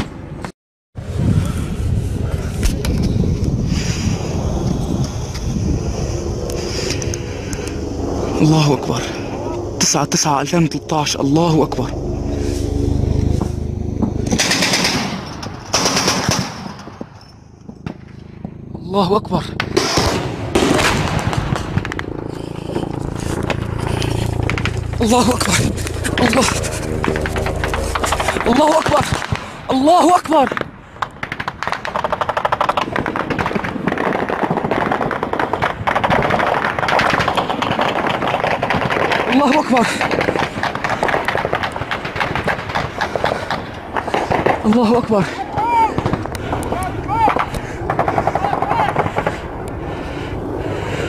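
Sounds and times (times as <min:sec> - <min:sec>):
automatic gunfire: 0:14.3 - 0:16.8
machine gun firing bursts: 0:14.3 - 0:17.0, 0:31.2 - 0:44.7, 0:46.0 - 0:49.4.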